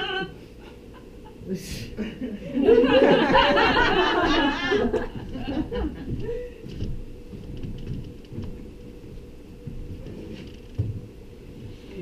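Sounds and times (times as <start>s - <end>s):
audience laughing: 2.0s - 6.1s.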